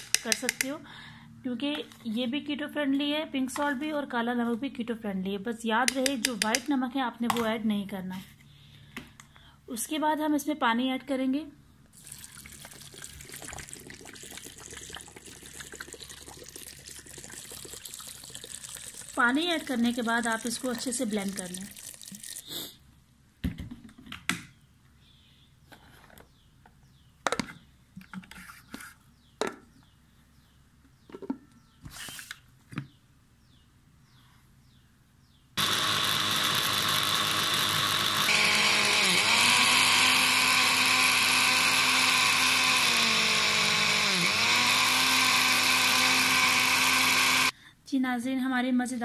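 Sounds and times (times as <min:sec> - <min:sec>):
electric blender running: 0:35.6 - 0:47.5.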